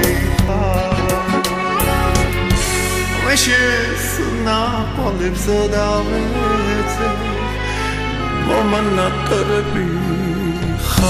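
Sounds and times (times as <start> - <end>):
song with drums and bass: 0.0 - 11.0.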